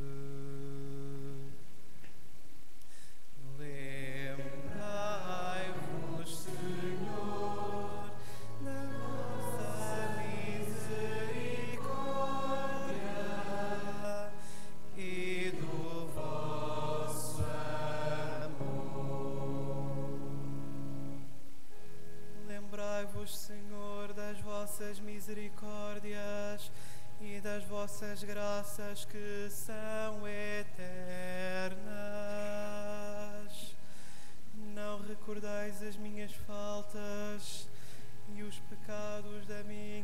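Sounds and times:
voices chanting a psalm: 3.6s - 20.8s.

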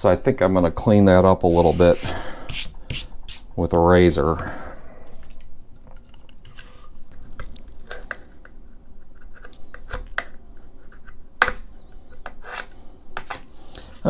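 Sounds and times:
hand tool scraping plastic: 6.2s - 14.0s.

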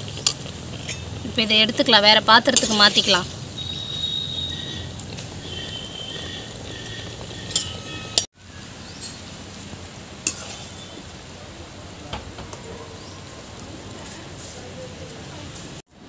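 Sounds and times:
steady low hiss: 0.0s - 12.5s.

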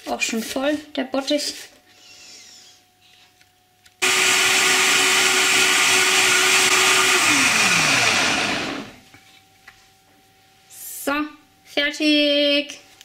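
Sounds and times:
blender motor whining: 4.0s - 9.0s.

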